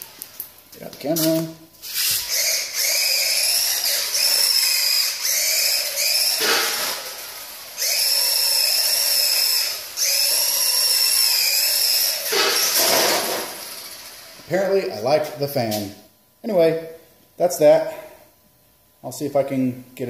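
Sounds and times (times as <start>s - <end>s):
electric motor and gearbox whining: 1.0s - 15.4s.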